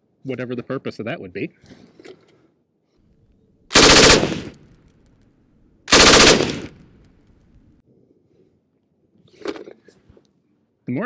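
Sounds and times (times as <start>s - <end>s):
machine gun firing bursts: 3.7s - 4.6s, 5.9s - 6.8s.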